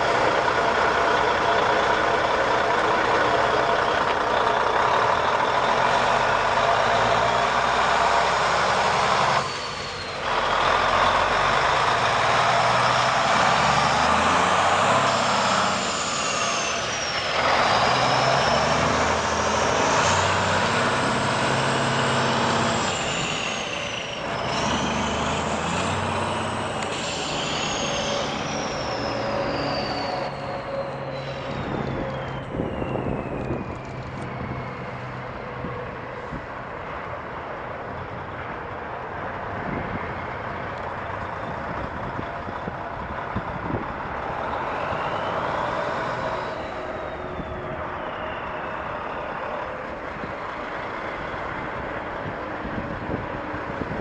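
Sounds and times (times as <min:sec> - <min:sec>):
truck diesel engine pulling: 0:00.0 - 0:54.0
high engine whistle: 0:08.6 - 0:35.8, 0:44.2 - 0:52.4.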